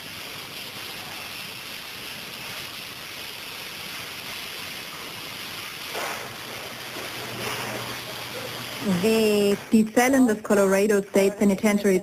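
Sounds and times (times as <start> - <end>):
steady rushing hiss: 0.0 - 12.0.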